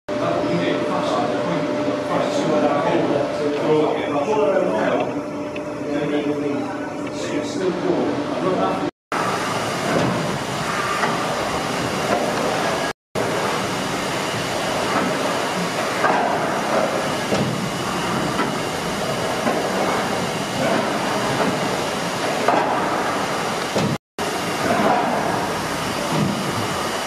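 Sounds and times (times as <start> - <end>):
steam engine clatter and hiss: 9.1 - 27.0.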